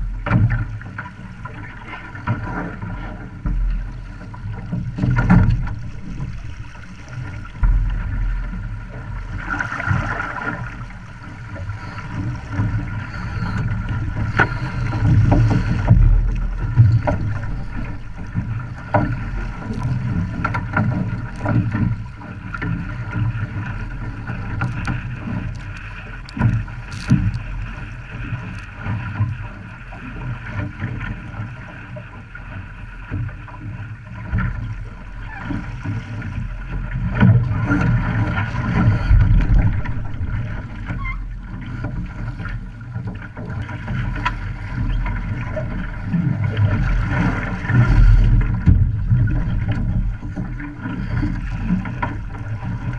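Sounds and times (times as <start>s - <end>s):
water splashing against hull: 0.0s - 52.9s
wind buffeting microphone: 4.6s - 29.6s, 37.1s - 41.5s.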